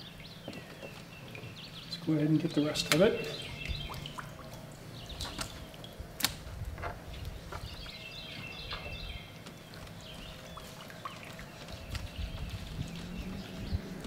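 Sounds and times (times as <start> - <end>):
birds chirping: 0.0 - 6.2, 6.9 - 14.0.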